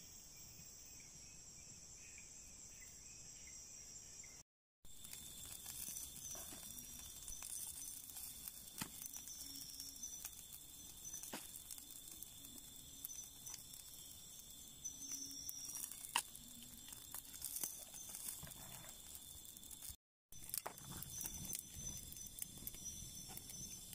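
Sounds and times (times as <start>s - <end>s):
campfire crackling: 4.9s - 23.9s
sharp pops of fire: 5.0s - 23.9s.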